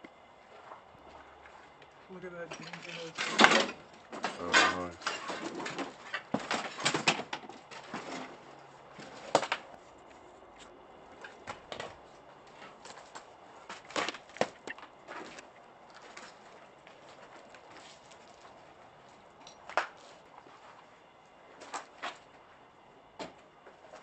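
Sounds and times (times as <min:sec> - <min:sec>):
footsteps crunching on debris: 0:12.0 - 0:22.5.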